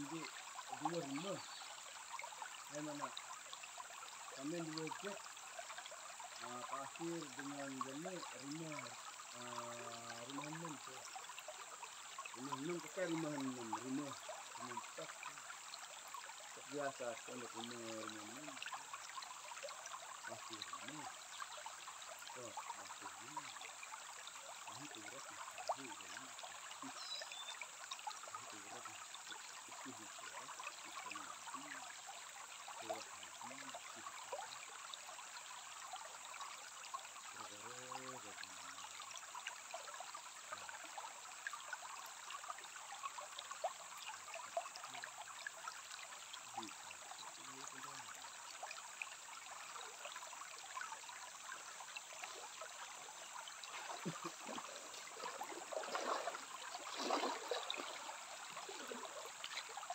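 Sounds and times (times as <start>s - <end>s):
stream flowing over pebbles: 0.0s - 59.9s
faint low voices: 6.4s - 11.0s, 37.4s - 38.5s.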